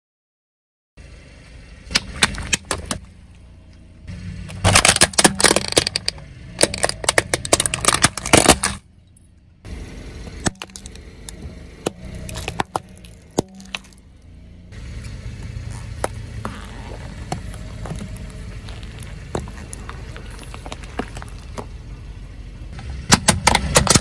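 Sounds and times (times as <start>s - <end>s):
car rumble: 1.0s - 24.0s
plastic toy car cracking: 4.6s - 8.8s, 23.1s - 24.0s
tyre on candy cans clicks: 4.6s - 8.8s.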